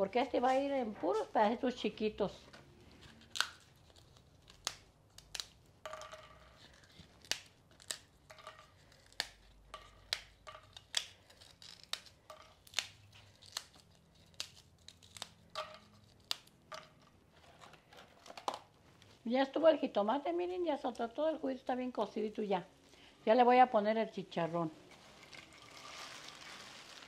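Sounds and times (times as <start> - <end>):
pork rinds snapping: 3.3 - 5.7, 8.9 - 16.9.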